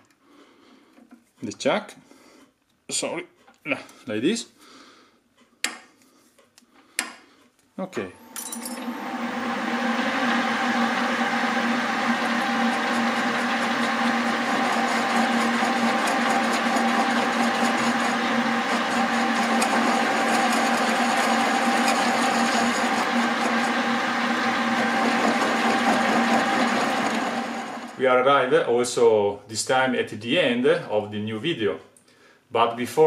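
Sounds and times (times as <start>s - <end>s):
lathe motor running: 8.1s - 28.0s.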